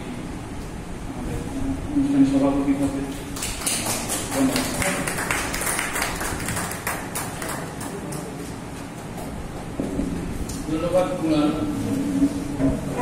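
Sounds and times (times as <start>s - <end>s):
small audience clapping: 3.1s - 9.3s.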